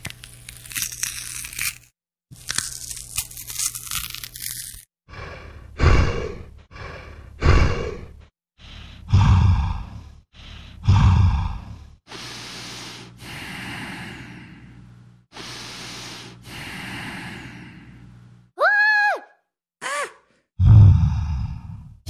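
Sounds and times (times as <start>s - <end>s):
heavy human breathing: 5.1s - 18.4s, 20.7s - 22.0s.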